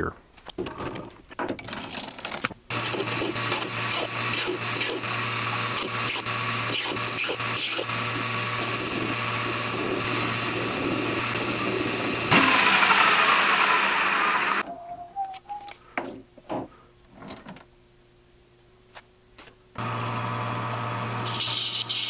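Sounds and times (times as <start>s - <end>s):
metal lathe cutting: 2.7s - 14.6s.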